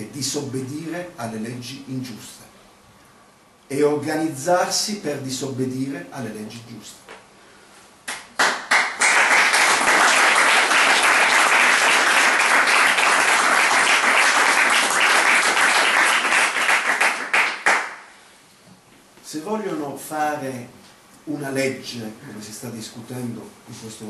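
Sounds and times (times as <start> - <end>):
audience applauding: 8.1 - 18.0.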